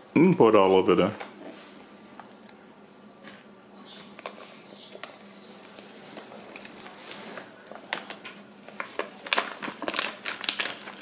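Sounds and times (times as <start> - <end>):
plastic bag crinkling: 3.1 - 11.0.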